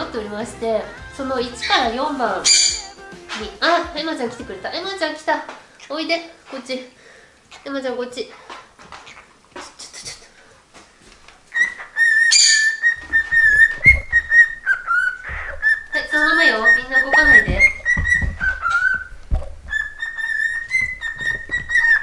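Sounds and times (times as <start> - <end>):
high whistling tune: 1.0 - 3.6.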